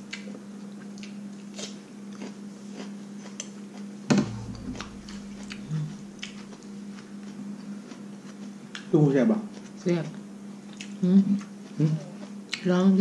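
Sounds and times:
chewing: 0:00.1 - 0:03.9, 0:05.5 - 0:08.9, 0:10.7 - 0:12.7
steady low hum: 0:02.1 - 0:13.0
loud thump: 0:04.1 - 0:06.6.

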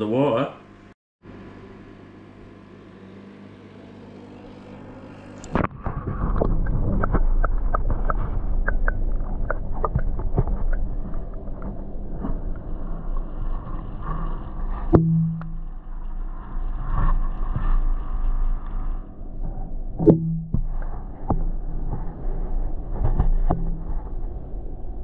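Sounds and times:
muffled underwater water movement: 0:05.3 - 0:25.0.

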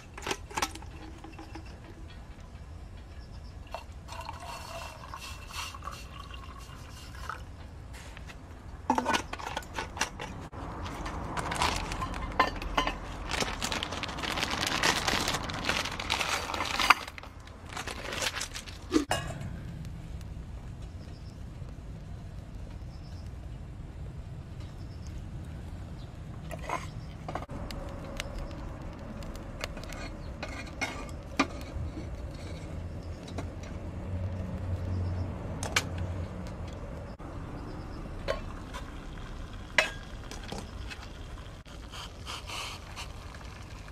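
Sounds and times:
liquid pouring into metal vessel: 0:03.7 - 0:07.5
metal cookware clanking: 0:30.0 - 0:33.5.

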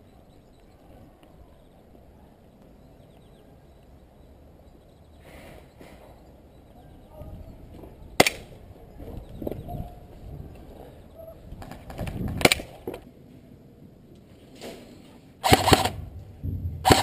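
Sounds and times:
airsoft gun shots: 0:08.2 - 0:08.5, 0:15.4 - 0:17.0.

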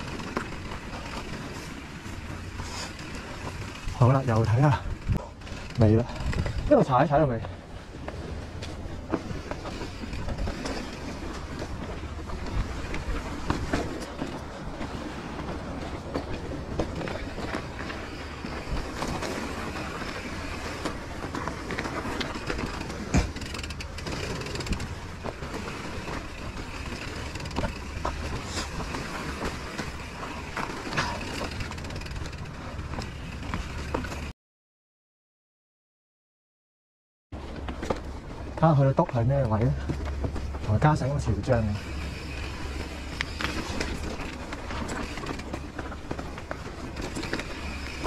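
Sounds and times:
mountain bike rattling over rock: 0:00.0 - 0:07.5, 0:09.0 - 0:14.7, 0:15.5 - 0:34.3, 0:37.5 - 0:48.0.

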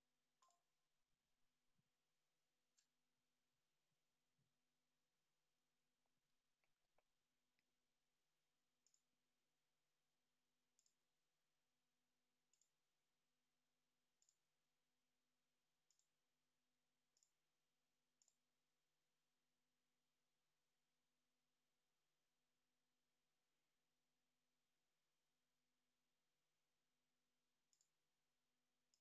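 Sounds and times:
computer mouse clicks: 0:08.8 - 0:09.1, 0:10.7 - 0:11.0, 0:12.5 - 0:12.8, 0:14.2 - 0:14.4, 0:15.9 - 0:16.1, 0:27.7 - 0:27.9.

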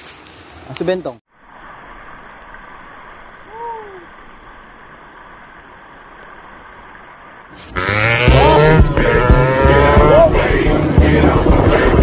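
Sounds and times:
waterfall rushing: 0:07.6 - 0:12.0
loud music: 0:07.8 - 0:12.0.

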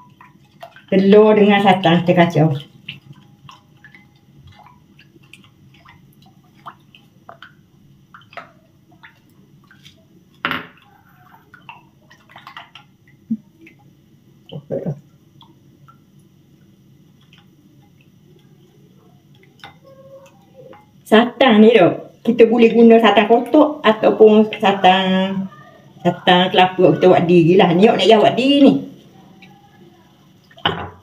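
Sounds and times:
small wet splashes: 0:00.0 - 0:21.1, 0:30.3 - 0:30.8.

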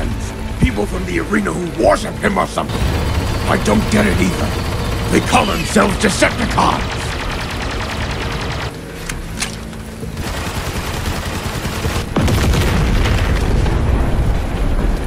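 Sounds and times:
gunfire: 0:02.7 - 0:08.7
explosions: 0:12.0 - 0:15.0
heavy boom with deep rumble: 0:12.2 - 0:15.0.

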